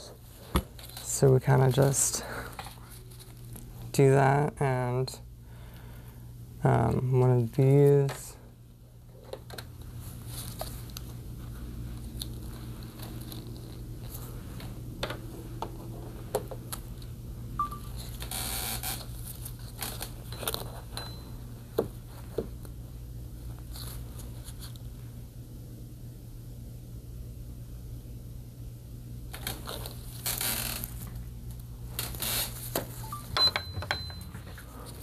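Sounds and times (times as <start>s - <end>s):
steady low hum: 0.0s - 35.0s
tape rustling: 2.3s - 3.8s, 9.2s - 14.8s, 17.9s - 21.0s, 29.3s - 33.0s.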